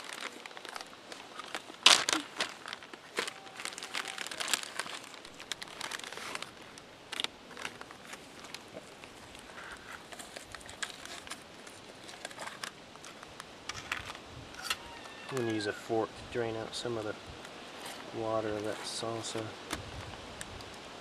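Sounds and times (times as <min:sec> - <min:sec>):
chip bags crinkling: 0:00.0 - 0:14.2.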